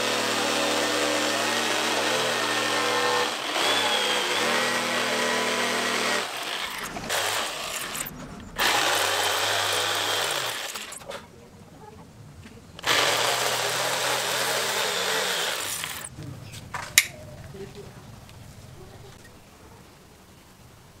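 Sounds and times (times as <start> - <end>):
electric jigsaw sawing wood: 0.0 - 11.2, 12.8 - 16.1.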